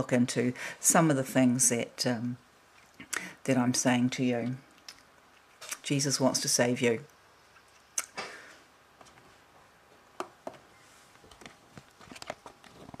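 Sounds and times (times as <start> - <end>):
soft rustle: 10.7 - 13.0.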